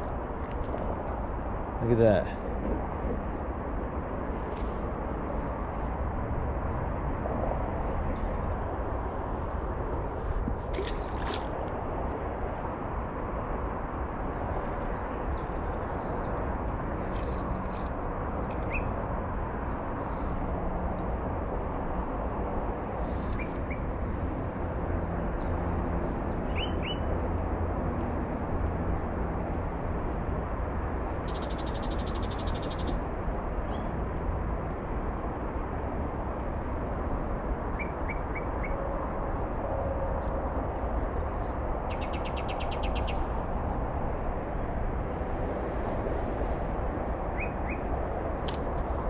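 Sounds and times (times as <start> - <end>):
small birds chirping: 14.2 - 21.1, 30.9 - 33.0, 41.1 - 43.7.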